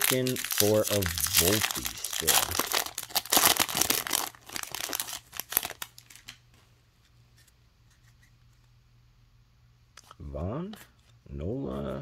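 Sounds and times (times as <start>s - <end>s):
foil wrapper crinkling and tearing: 0.0s - 6.4s.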